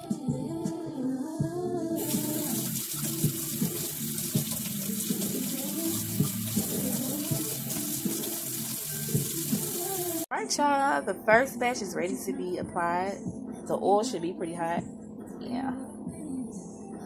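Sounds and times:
faucet running into sink: 2.0 - 10.3.

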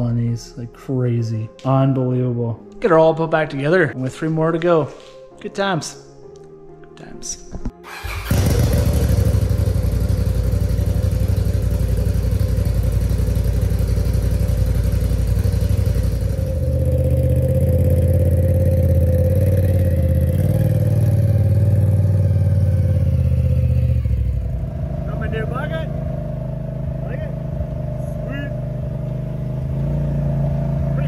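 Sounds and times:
engine running: 8.0 - 31.0.

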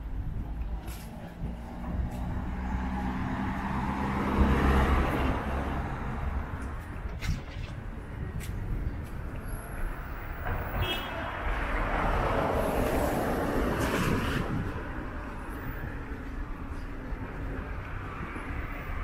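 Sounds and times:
background traffic rumble: 0.0 - 19.0
car passing: 1.3 - 8.2.

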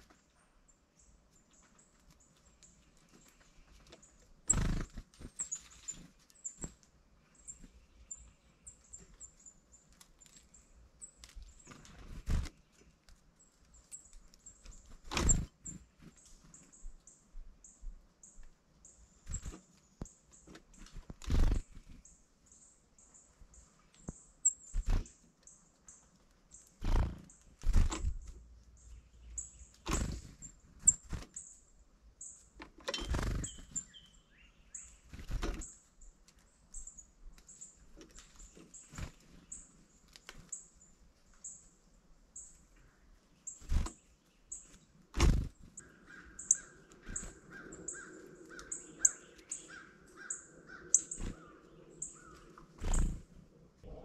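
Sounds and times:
birds chirping: 0.5 - 54.0
lower drawn-out bird calls: 45.8 - 54.0.

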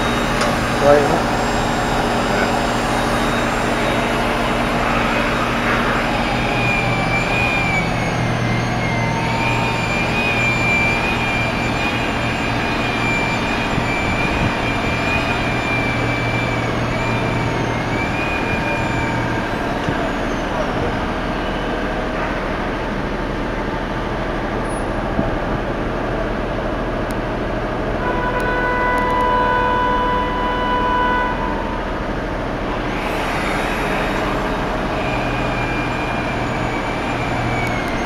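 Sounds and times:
high wavering whine: 0.0 - 38.0
idling vans and trucks: 0.0 - 38.0.

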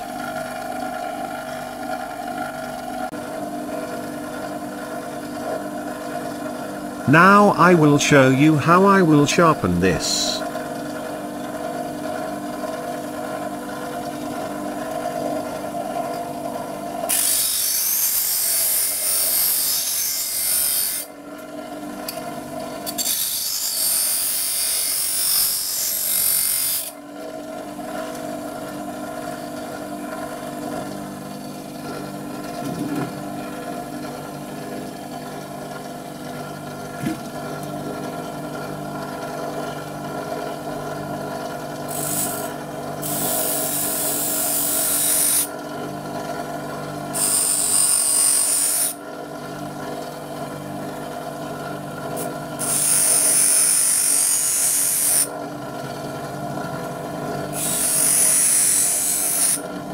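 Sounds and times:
bench grinder motor hum: 0.0 - 7.0, 10.4 - 59.9
drill bit grinding on wheel: 17.1 - 21.1, 22.8 - 27.0, 41.9 - 45.5, 47.1 - 49.0, 52.2 - 55.3, 57.5 - 59.6.

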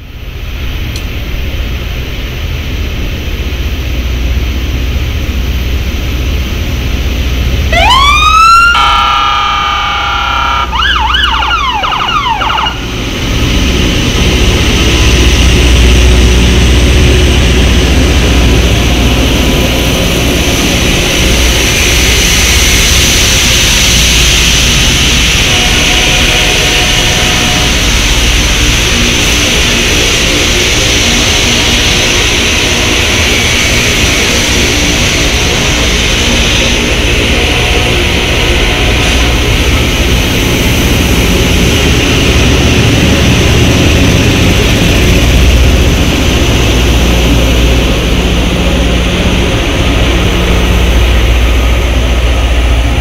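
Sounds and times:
train rumbling past: 0.0 - 53.0
warning signal chord: 8.6 - 11.4.

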